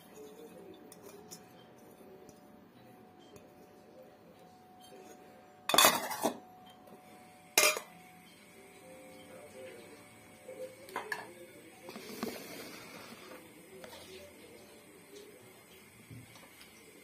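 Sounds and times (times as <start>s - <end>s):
metal bowl clink: 4.8s - 6.9s, 7.5s - 8.0s
metal bowls clattering: 5.7s - 6.4s, 7.6s - 8.0s.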